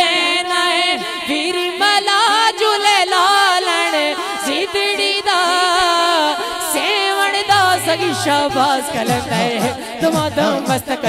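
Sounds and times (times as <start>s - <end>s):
man singing into a microphone: 3.7s - 11.0s.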